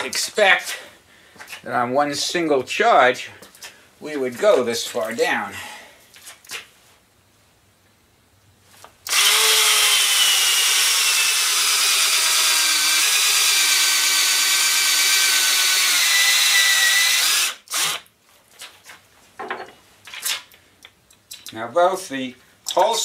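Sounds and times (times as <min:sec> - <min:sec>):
cordless drill cutting with hole saw: 0:09.1 - 0:18.0.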